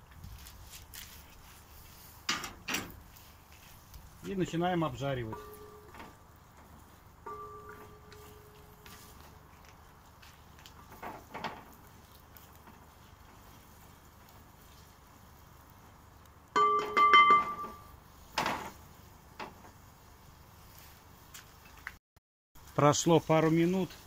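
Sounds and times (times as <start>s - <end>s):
utensil stirring frying onions: 0.7s - 21.6s, 22.6s - 24.0s
utensil knocking on metal pot: 16.6s - 17.8s.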